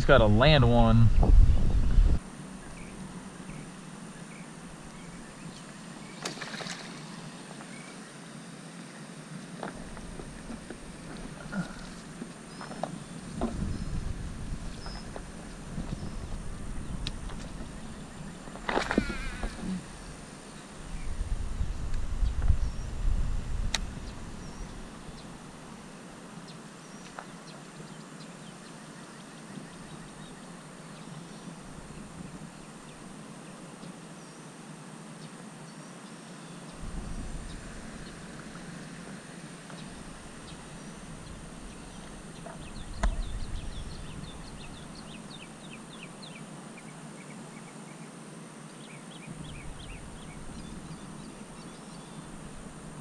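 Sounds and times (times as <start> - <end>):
wind gusting on microphone: 0.0 - 2.2, 13.0 - 25.4, 36.8 - 45.4, 49.3 - 51.7
small birds chirping: 9.9 - 21.2, 39.6 - 48.0.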